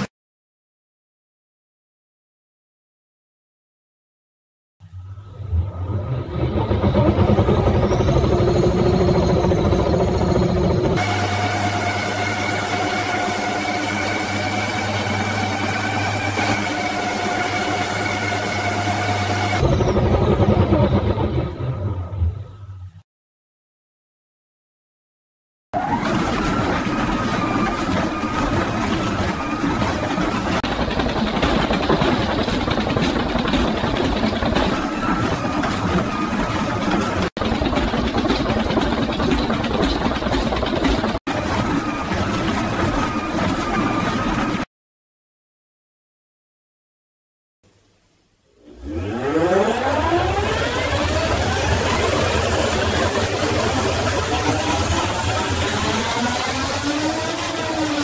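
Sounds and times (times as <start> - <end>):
high-pitched motor whine: 4.8 - 22.6
washing machine motor humming: 5.4 - 21.9, 25.8 - 44.6, 48.8 - 58.0.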